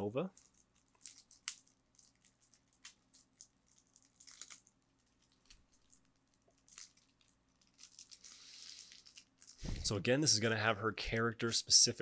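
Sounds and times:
plastic shrink wrap crinkling and tearing: 0:00.1 - 0:09.8.

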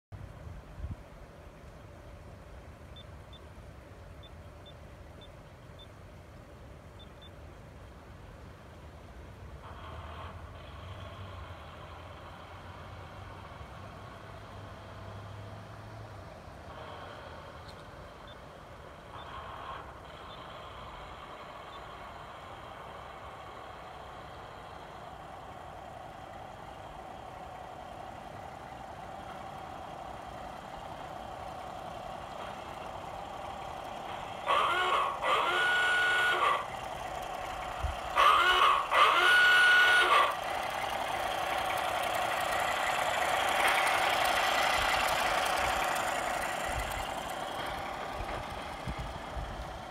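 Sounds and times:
railcar engine hum: 0:00.1 - 0:49.9
railcar horn blasts: 0:38.2 - 0:40.3.

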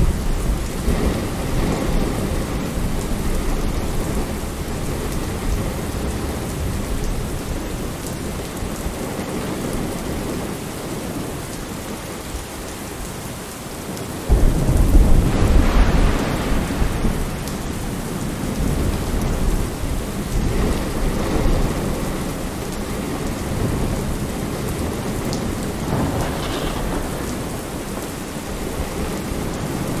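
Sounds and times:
rain on window glass: 0:00.0 - 0:30.0
loud low rumble: 0:14.3 - 0:18.2.

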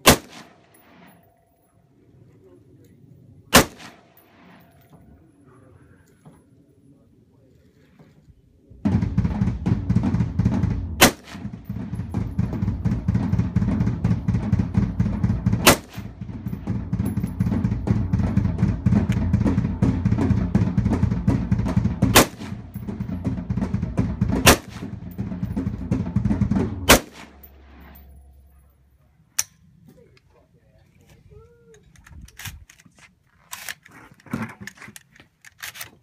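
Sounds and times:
rifle shots: 0:00.0 - 0:01.3, 0:03.5 - 0:04.8, 0:08.9 - 0:28.2
drum-heavy music: 0:08.9 - 0:27.9.

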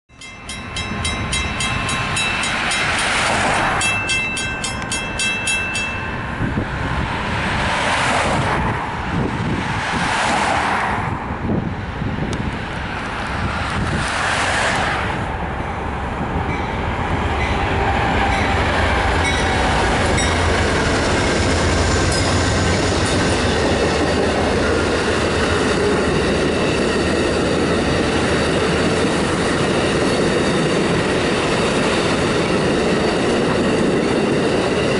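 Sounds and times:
railroad crossing bell ringing: 0:00.1 - 0:07.0, 0:15.6 - 0:34.9
train rumbling past: 0:00.1 - 0:34.9
clickety-clack of train wheels: 0:00.2 - 0:06.0, 0:09.5 - 0:11.0, 0:16.4 - 0:34.9.

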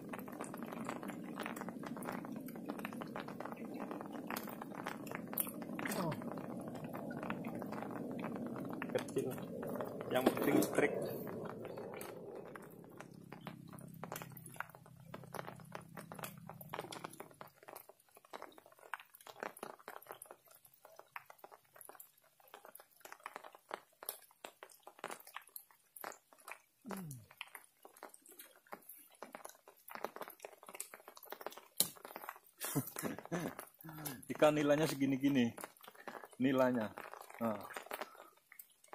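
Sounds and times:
raindrops ticking and crackling: 0:00.0 - 0:38.9
low hum: 0:01.0 - 0:17.2.

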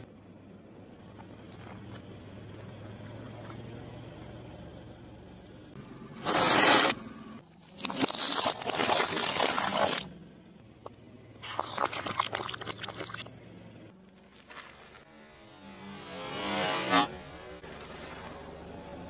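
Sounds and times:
glove bursting with liquid rush: 0:07.8 - 0:10.1.

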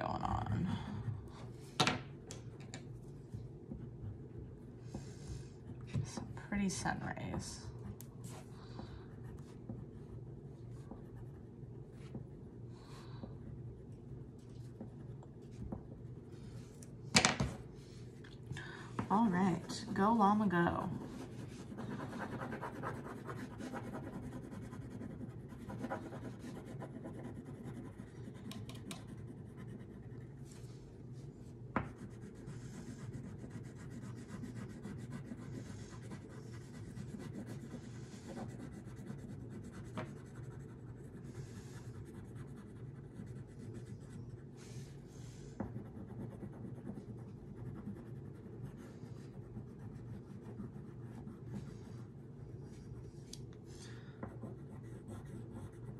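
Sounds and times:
crayon scribbling on paper: 0:19.1 - 0:30.4, 0:31.9 - 0:52.1.

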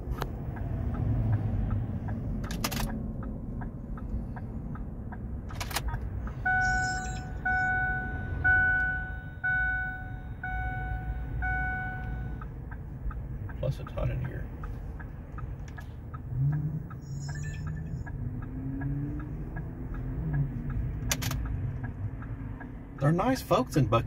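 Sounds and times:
steady low rumble: 0:00.0 - 0:18.5
sharp clicks: 0:00.1 - 0:06.4, 0:14.2 - 0:22.8
dashboard warning chime: 0:06.3 - 0:12.5, 0:16.9 - 0:18.1
light rapid ticking: 0:12.4 - 0:17.1.

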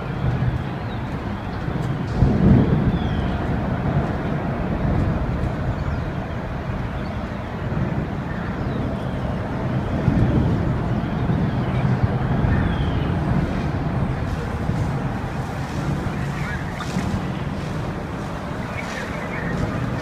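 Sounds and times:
fire engines rumbling: 0:00.0 - 0:20.0.

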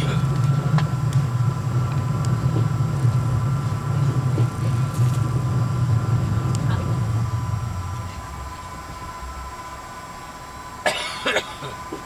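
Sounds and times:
faint high hum: 0:00.0 - 0:12.0
train rumbling: 0:00.0 - 0:12.0.

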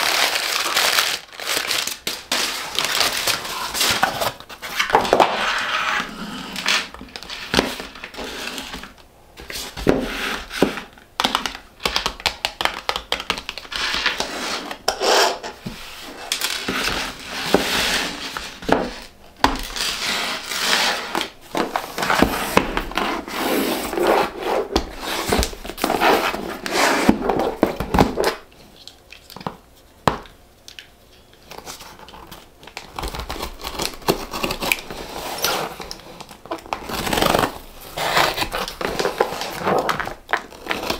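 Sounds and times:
paper rustling and crinkling: 0:00.0 - 0:10.0, 0:31.5 - 0:40.9
packing tape being slit: 0:31.5 - 0:40.9.

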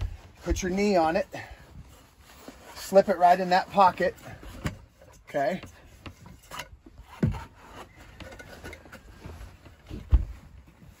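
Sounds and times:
canvas rubbing and rustling: 0:00.0 - 0:11.0
dull thumps: 0:09.2 - 0:10.7.

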